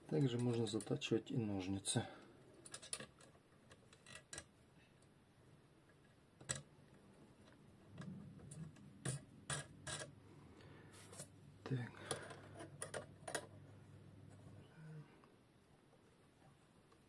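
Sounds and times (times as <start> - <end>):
small metal clicks: 2.6 - 5.1, 6.4 - 6.7, 12.0 - 13.5.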